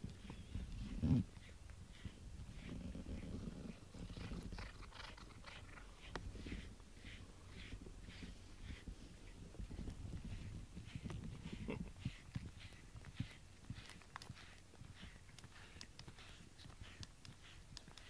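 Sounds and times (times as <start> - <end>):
fur rubbing against microphone: 0.0 - 18.0
cat purring: 0.2 - 18.0.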